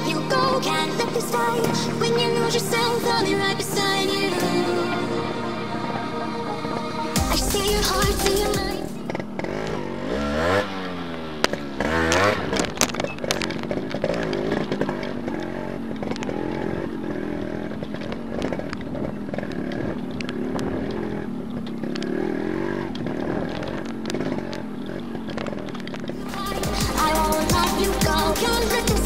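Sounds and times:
motorcycle engine revving: 7.2s - 29.0s.

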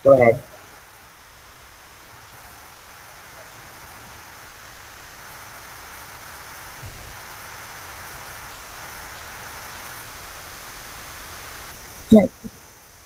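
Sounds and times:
microphone hiss: 0.0s - 13.0s
faint low thump: 6.8s - 7.2s.

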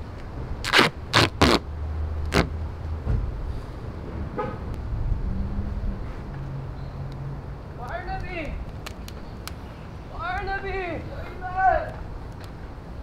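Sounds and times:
duct tape ripping off roll: 0.6s - 2.6s.

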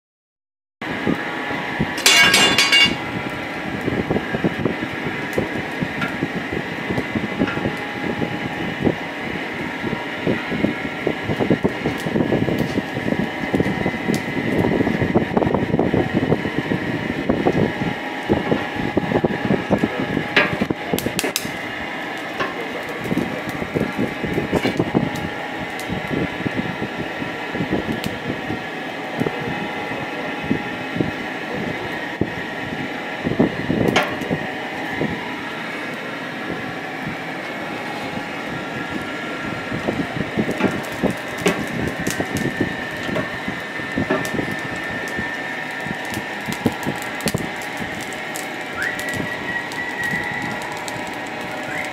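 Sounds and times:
burning fuel crackling: 0.8s - 51.9s
faint motor whine: 0.8s - 51.9s
sharp snaps of fire: 11.2s - 15.0s, 19.8s - 26.4s, 27.6s - 28.2s, 37.9s - 51.9s
electric blower rushing: 33.3s - 51.9s.

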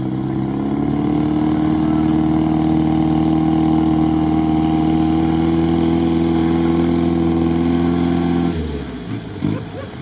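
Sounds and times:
truck engine running under load: 0.0s - 10.0s.

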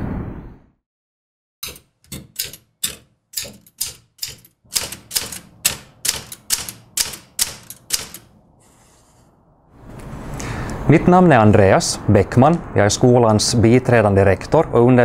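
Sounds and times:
typewriter carriage stepping: 1.6s - 8.3s
typewriter key strikes: 1.6s - 8.3s.

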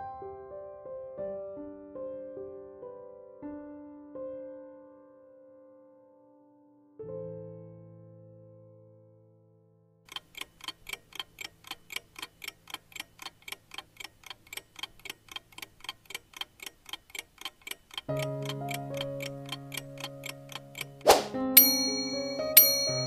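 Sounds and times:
clock ticking: 10.1s - 23.0s
held chord of sustained tones: 21.6s - 23.0s.

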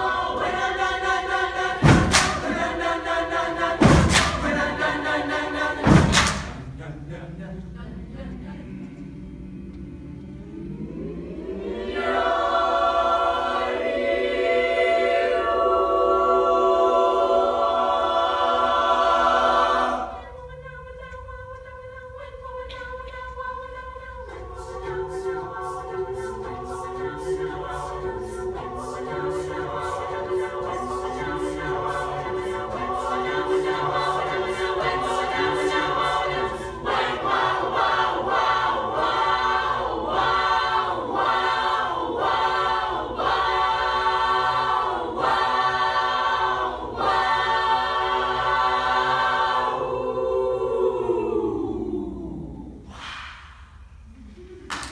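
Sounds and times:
choir singing a cappella: 0.0s - 54.9s.

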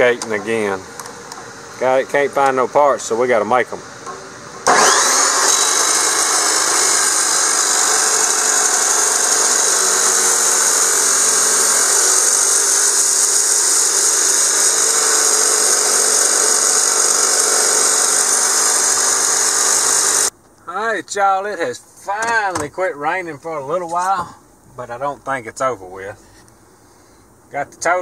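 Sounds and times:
chop saw grinding steel pipe: 4.1s - 20.3s.

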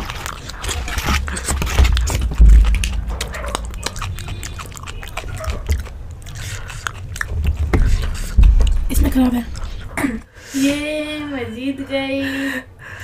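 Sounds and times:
person chewing food: 0.0s - 10.2s
wet mouth clicks: 0.0s - 10.2s
loud low thump: 1.8s - 5.8s, 7.7s - 9.9s.

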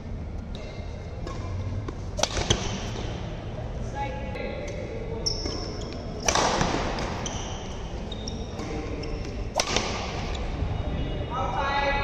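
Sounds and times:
racket hitting shuttlecock: 1.2s - 3.2s, 5.4s - 7.7s, 8.5s - 10.3s
shoes squeaking on court: 4.7s - 10.6s.

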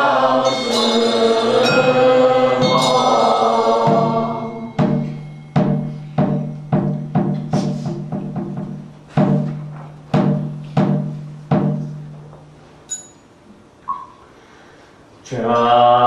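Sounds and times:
group of voices chanting: 0.0s - 4.8s
resonant struck instrument: 0.0s - 12.2s.

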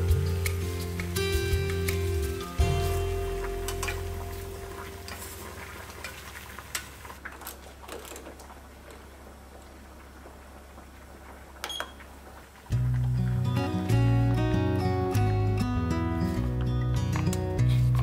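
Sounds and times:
background music: 0.0s - 5.8s, 12.8s - 18.0s.

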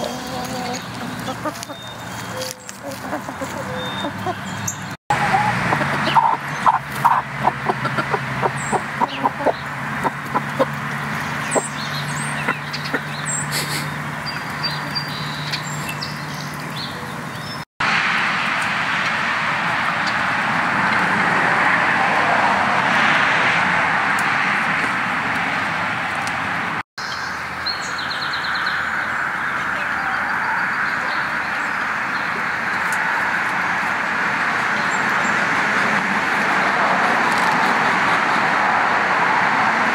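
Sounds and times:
chickens clucking: 0.0s - 17.3s.

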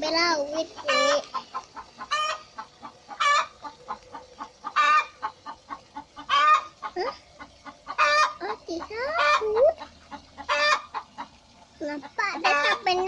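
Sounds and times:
chickens clucking: 0.0s - 13.0s
loud chicken calls: 0.8s - 8.4s, 9.2s - 11.4s, 12.4s - 12.9s.

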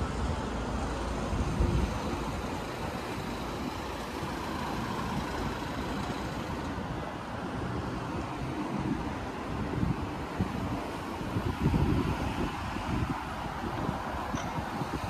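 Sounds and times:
road traffic rumble: 0.0s - 15.0s.

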